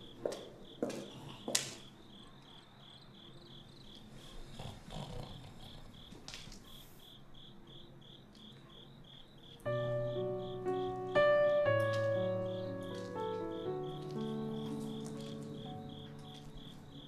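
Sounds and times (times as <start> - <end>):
crickets chirping: 0.0 - 17.0
footsteps on hard floor: 0.2 - 1.7, 12.8 - 16.7.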